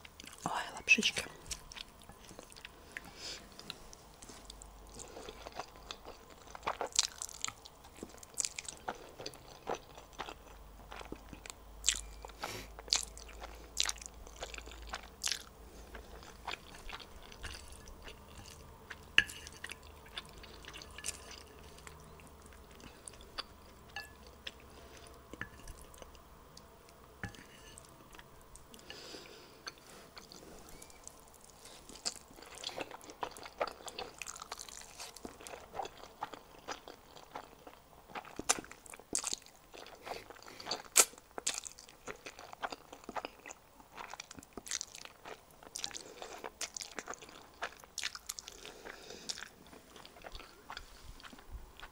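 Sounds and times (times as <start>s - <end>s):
chewing with wet mouth smacks: 1.3s - 27.5s, 29.6s - 51.9s.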